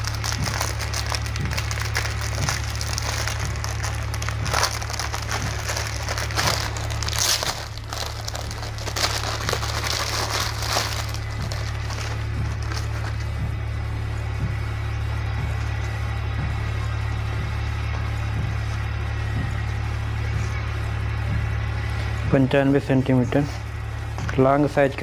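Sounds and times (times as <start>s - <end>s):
plastic packaging crinkling: 0.0s - 13.3s
background music: 0.0s - 25.0s.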